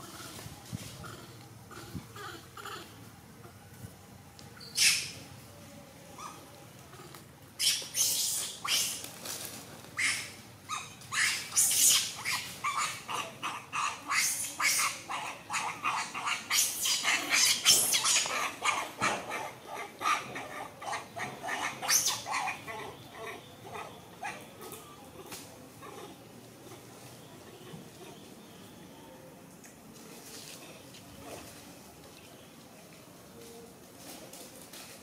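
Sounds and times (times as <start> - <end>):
macaques screaming: 7.6 - 9.0, 10.0 - 24.4.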